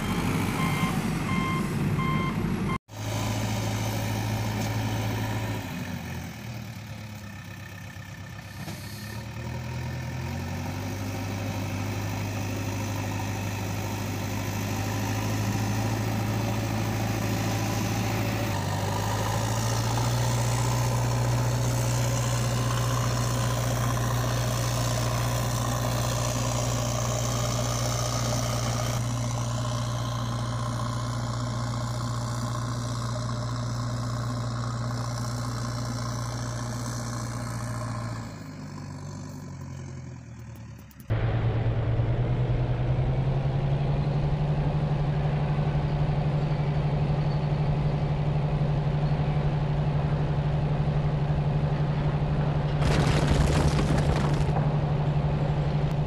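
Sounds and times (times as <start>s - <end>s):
reversing alarm beeping: 0.0s - 2.8s
heavy vehicle engine drone: 0.0s - 56.0s.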